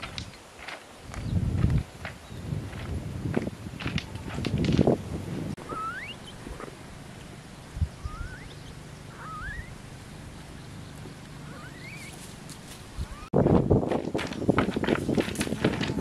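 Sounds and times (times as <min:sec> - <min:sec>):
footsteps on stones: 0:00.0 - 0:05.0, 0:11.9 - 0:16.0
quail chirping: 0:05.6 - 0:06.7, 0:07.8 - 0:13.3.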